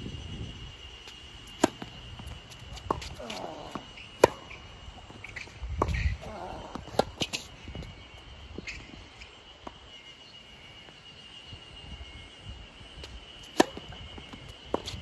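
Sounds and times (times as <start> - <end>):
tennis ball struck with racket: 2.8 - 4.6.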